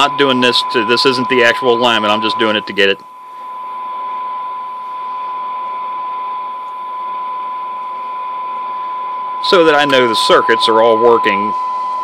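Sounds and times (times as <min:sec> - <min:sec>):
steady test tone: 0:00.0 - 0:12.0
radio receiver hiss: 0:09.4 - 0:12.0.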